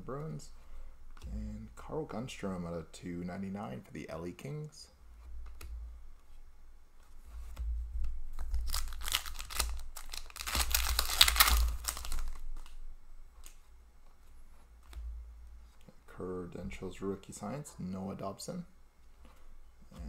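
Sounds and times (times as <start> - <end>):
foil wrapper tearing and crinkling: 8.4 - 12.7.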